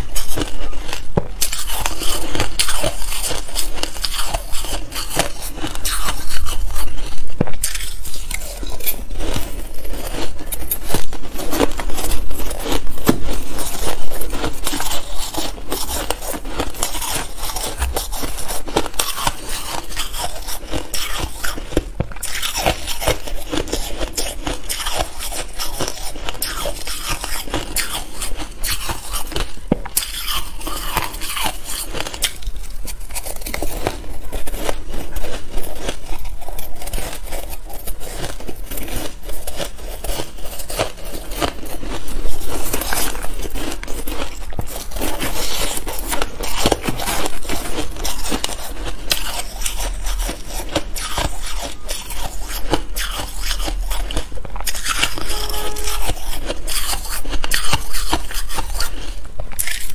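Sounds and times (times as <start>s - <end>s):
shaved ice crunching in mouth: 0.0s - 59.9s
metal spoon scraping ice: 34.3s - 59.9s.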